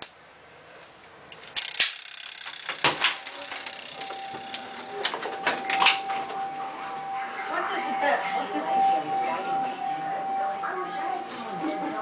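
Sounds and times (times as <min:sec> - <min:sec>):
steady high alarm tone: 0:02.2 - 0:12.0
fire alarm handle clicks: 0:02.7 - 0:06.5.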